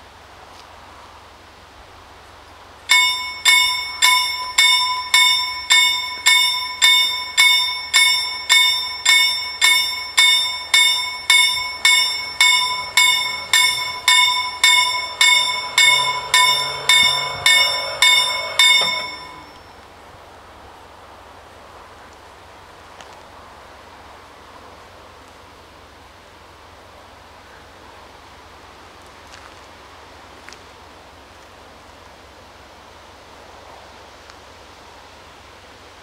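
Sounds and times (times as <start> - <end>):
level crossing bells ringing: 2.9 - 19.8.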